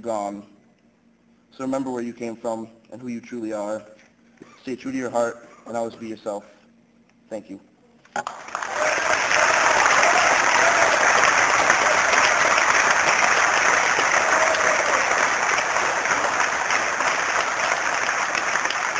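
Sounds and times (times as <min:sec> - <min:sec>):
audience applauding: 0:08.2 - 0:18.9.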